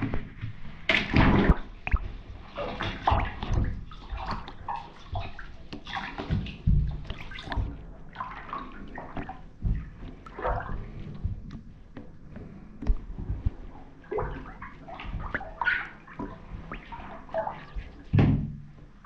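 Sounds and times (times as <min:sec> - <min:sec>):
feet sloshing in shallow water: 0:00.0 - 0:19.0
dull thuds: 0:06.1 - 0:15.8.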